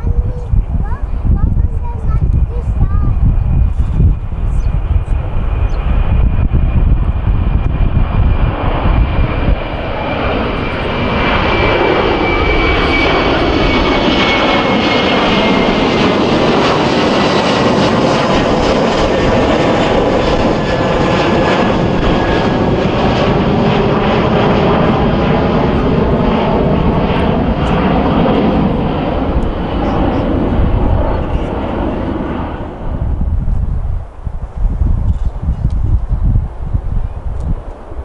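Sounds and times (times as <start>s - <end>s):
jet engine roar with whine: 0.0s - 38.0s.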